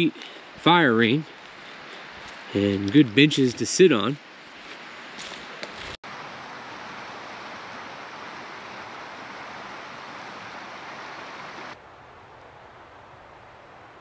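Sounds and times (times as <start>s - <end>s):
river rushing: 6.0s - 11.8s.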